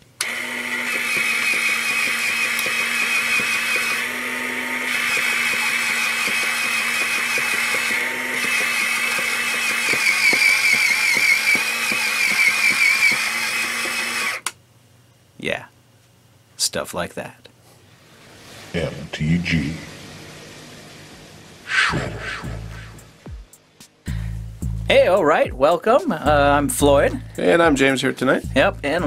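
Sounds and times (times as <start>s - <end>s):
paper shredder motor humming: 0.0s - 14.5s
shredder cutting cards: 0.2s - 14.5s.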